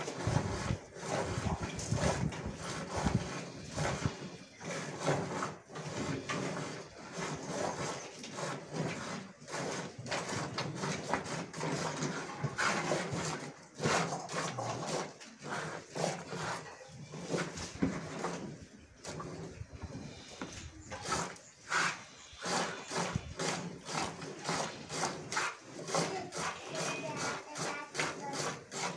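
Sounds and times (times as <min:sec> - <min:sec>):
milk squirting into bucket: 0:20.5 - 0:28.9.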